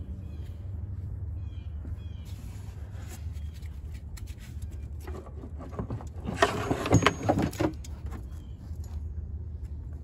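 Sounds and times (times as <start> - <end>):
scraping and knocking: 5.0 - 8.2.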